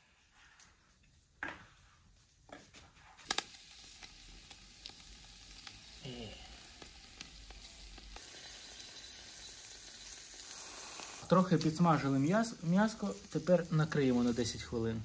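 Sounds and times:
meat sizzling on a charcoal grill: 3.2s - 15.0s.

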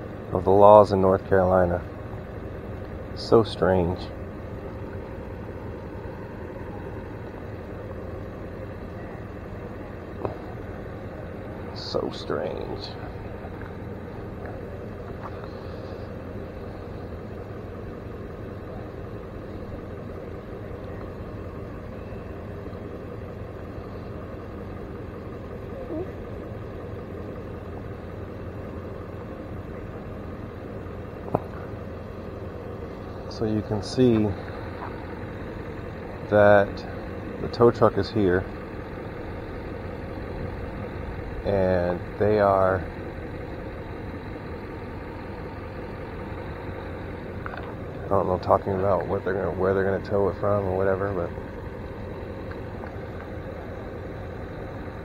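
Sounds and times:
vehicle engine idling: 0.0s - 55.0s.

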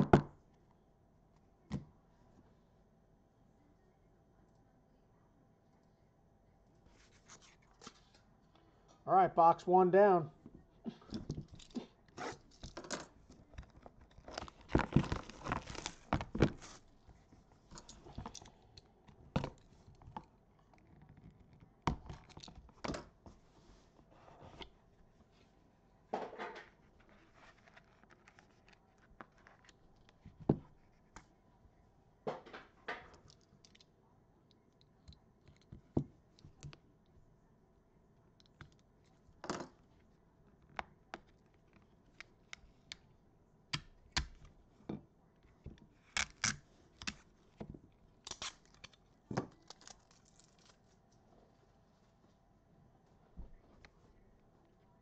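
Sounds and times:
box and cards handled: 6.9s - 8.3s, 11.1s - 24.8s, 26.2s - 31.3s, 45.4s - 51.3s.

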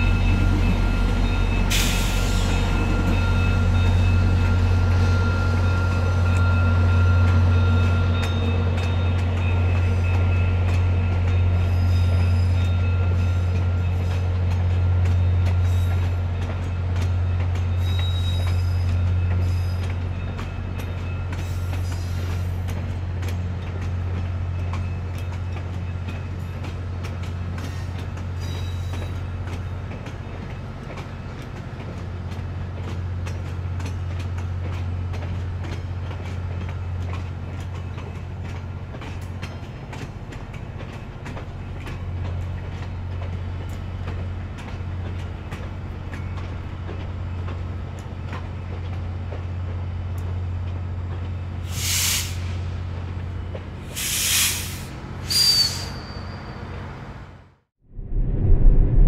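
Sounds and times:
diesel locomotive engine drone: 0.0s - 59.0s
light clicks from train cars: 5.9s - 55.0s
wheel squeals: 17.7s - 19.9s, 27.6s - 29.2s, 55.2s - 56.8s.

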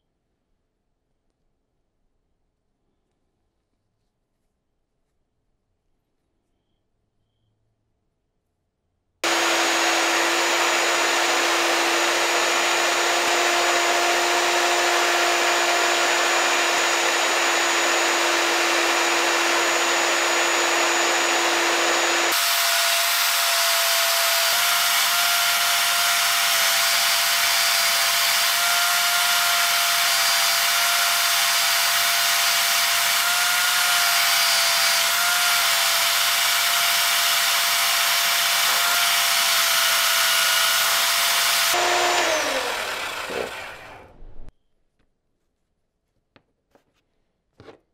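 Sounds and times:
drill press motor whine: 9.2s - 44.5s.

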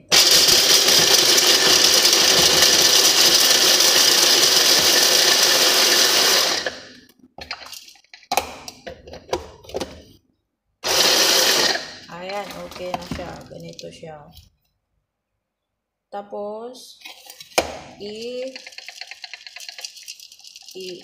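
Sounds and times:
electric hand blender grinding nuts: 0.0s - 7.8s, 10.8s - 13.4s, 18.0s - 21.0s.

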